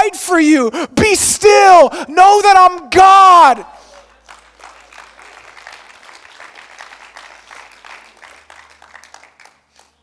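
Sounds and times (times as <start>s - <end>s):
crowd applauding: 3.9s - 10.0s.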